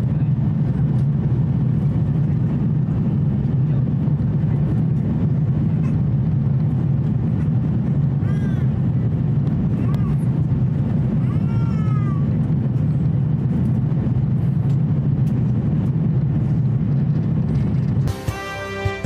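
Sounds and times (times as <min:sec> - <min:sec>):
airplane cabin rumble: 0:00.0 - 0:19.0
background music: 0:18.1 - 0:19.0.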